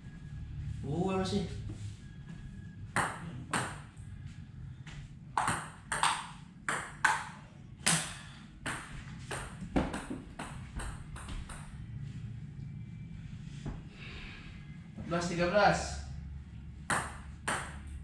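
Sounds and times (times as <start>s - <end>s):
table tennis ball hits: 2.9s - 4.0s, 5.4s - 11.8s, 16.8s - 18.0s.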